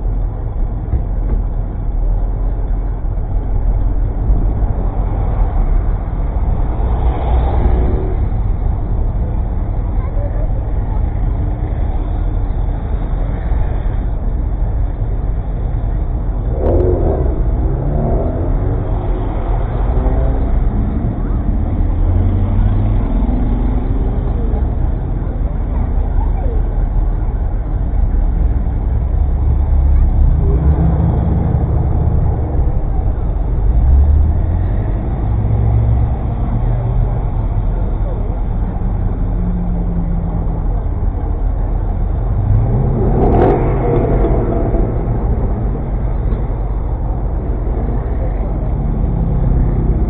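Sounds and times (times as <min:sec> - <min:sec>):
car engine rumbling: 0:00.0 - 0:50.0.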